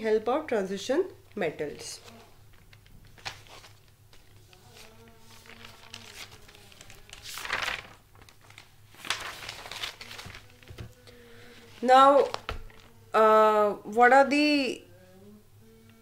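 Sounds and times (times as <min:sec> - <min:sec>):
low steady hum: 0:00.0 - 0:16.0
rustling and crinkling: 0:01.3 - 0:13.0.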